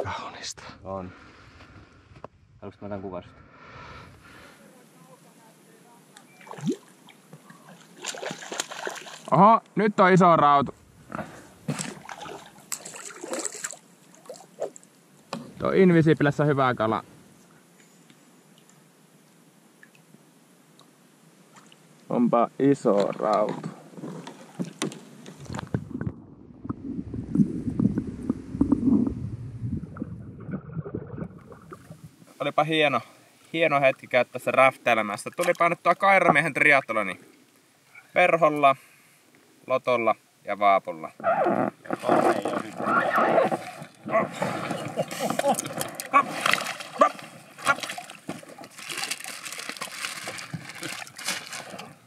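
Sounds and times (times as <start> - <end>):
open-air hiss: 0.0 - 25.8, 31.5 - 52.0
underwater rumbling and sloshing: 1.2 - 2.6, 25.4 - 32.3, 41.7 - 48.7
water splashing: 6.3 - 9.4, 11.2 - 14.8, 29.8 - 32.1, 41.8 - 52.0
plastic bag rustling: 45.7 - 52.0.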